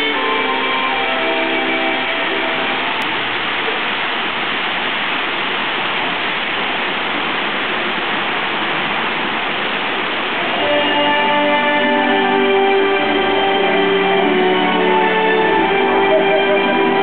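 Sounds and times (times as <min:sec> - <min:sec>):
waterfall rushing: 0:00.0 - 0:17.0
guitar music: 0:10.6 - 0:17.0.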